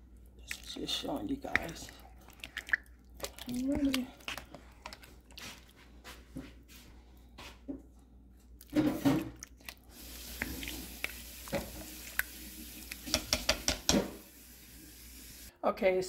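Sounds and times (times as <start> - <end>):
faint steady hiss: 9.9 - 15.6.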